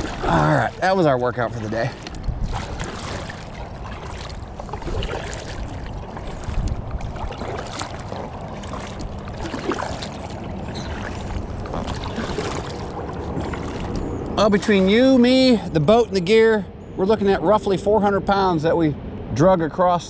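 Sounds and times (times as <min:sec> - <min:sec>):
paddles splashing in water: 0:00.0 - 0:15.0
wind rumbling on microphone: 0:00.0 - 0:20.0.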